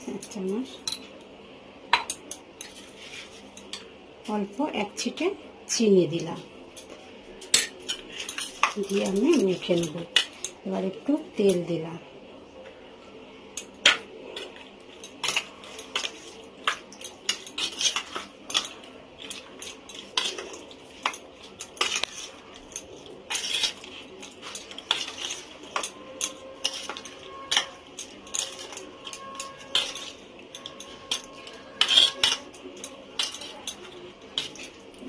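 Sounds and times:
spoon scraping metal box: 0:07.8 - 0:10.6, 0:13.9 - 0:35.0.

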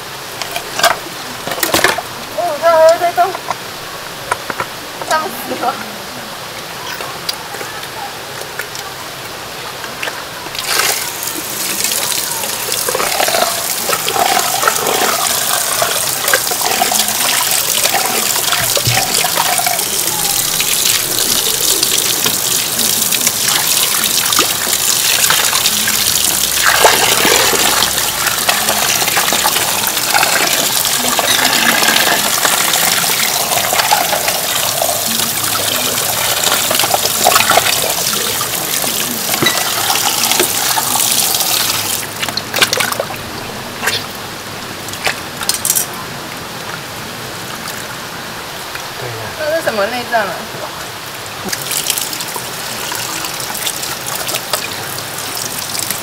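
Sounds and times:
water splashing over fish: 0:09.9 - 0:44.2, 0:49.7 - 0:56.0
hose water gushing into sink: 0:10.5 - 0:43.0.

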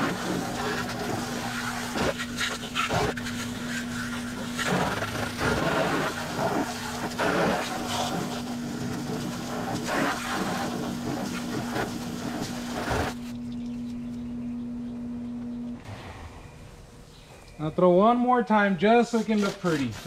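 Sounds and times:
hose spray splashing on metal: 0:00.0 - 0:13.2, 0:19.0 - 0:20.0
steady low hum: 0:00.0 - 0:19.1.

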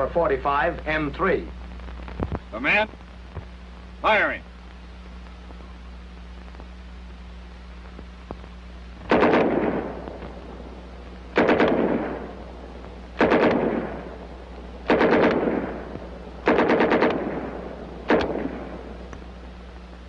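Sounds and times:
steady low hum: 0:00.0 - 0:20.0
submachine gun bursts with echo: 0:09.1 - 0:10.6, 0:11.3 - 0:12.4, 0:13.2 - 0:19.0.

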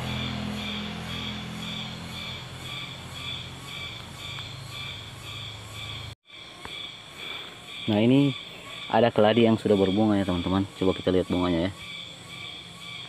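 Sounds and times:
low steady hum: 0:00.0 - 0:06.2
high pulsing wildlife chirps: 0:00.0 - 0:13.0.

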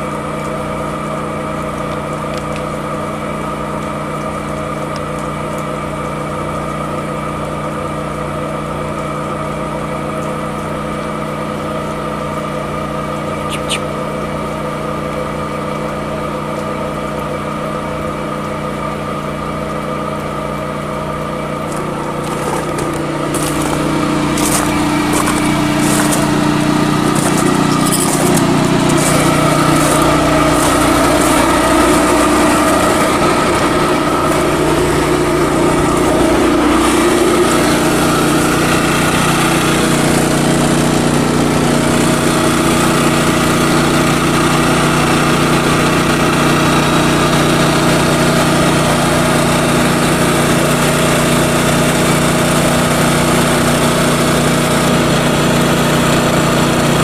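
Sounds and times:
generator running: 0:00.0 - 0:57.0.

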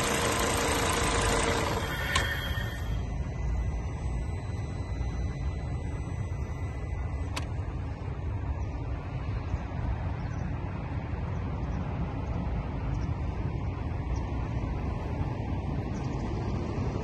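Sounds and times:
car engine running: 0:00.0 - 0:09.1.

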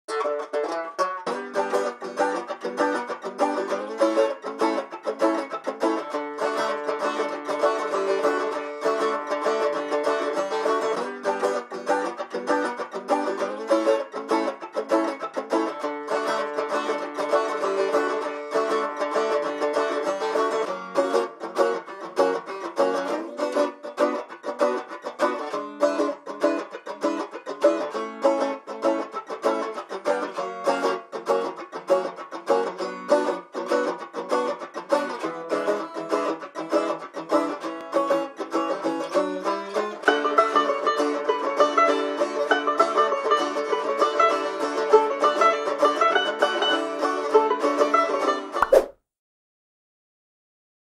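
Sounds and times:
plucked string instrument music: 0:00.1 - 0:48.9.

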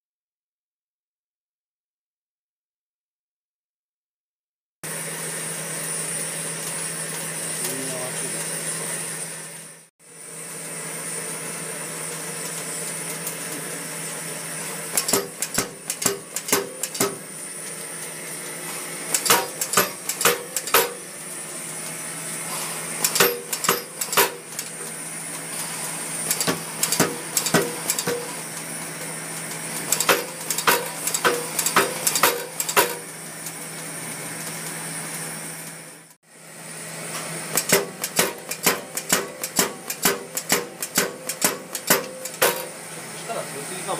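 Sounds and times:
steady background hum: 0:10.1 - 0:43.9
air hammer striking steel: 0:14.9 - 0:17.4, 0:19.1 - 0:21.2, 0:23.0 - 0:24.9, 0:26.3 - 0:28.5, 0:29.9 - 0:33.2, 0:37.5 - 0:42.8.

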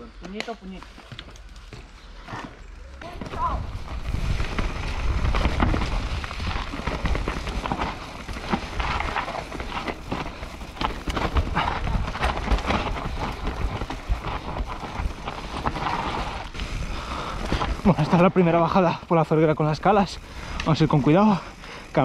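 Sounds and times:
bike rattling: 0:00.2 - 0:22.0
tyres crunching on dirt and stones: 0:00.3 - 0:22.0
wind buffeting microphone: 0:03.1 - 0:17.9.

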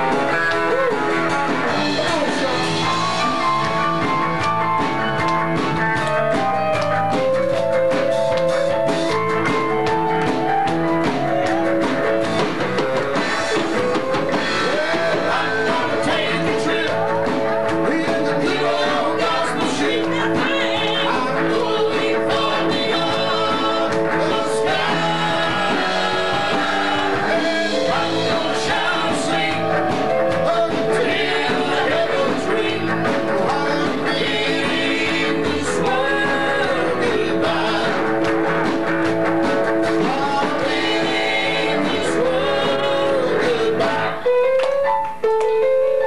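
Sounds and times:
live band playing: 0:00.0 - 0:46.0
male vocal quartet singing: 0:14.5 - 0:38.3, 0:39.9 - 0:44.4.

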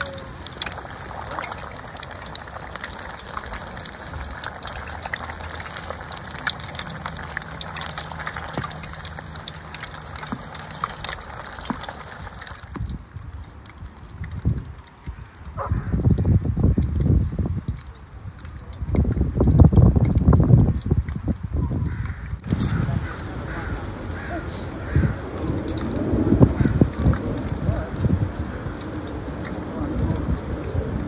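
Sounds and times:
food sizzling in hot oil: 0:00.0 - 0:14.3.

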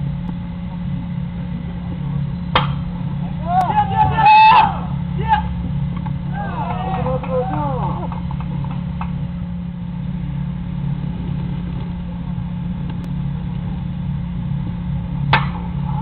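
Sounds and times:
faint hum: 0:00.0 - 0:16.0
low outdoor rumble: 0:00.0 - 0:16.0
sharp crack: 0:02.5 - 0:02.9, 0:15.3 - 0:15.7.

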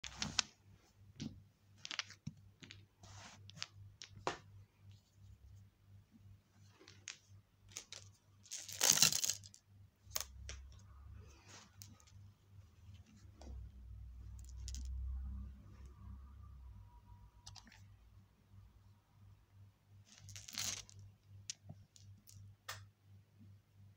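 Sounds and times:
marbles clicking: 0:14.3 - 0:15.1.

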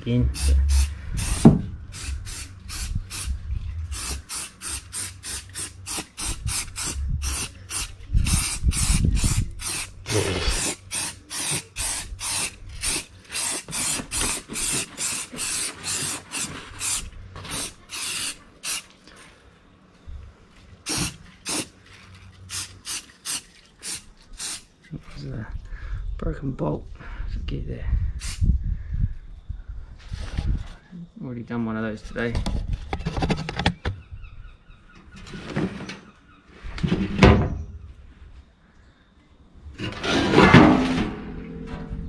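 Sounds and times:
aerosol can spraying bursts: 0:00.4 - 0:03.3, 0:03.9 - 0:18.9, 0:20.9 - 0:21.7, 0:22.5 - 0:24.7.

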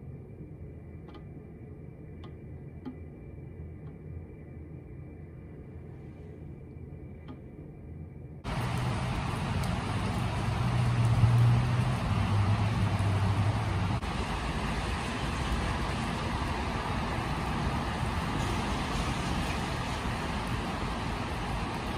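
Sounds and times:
low engine hum: 0:08.4 - 0:21.9
rain on wet paving: 0:08.4 - 0:21.9.

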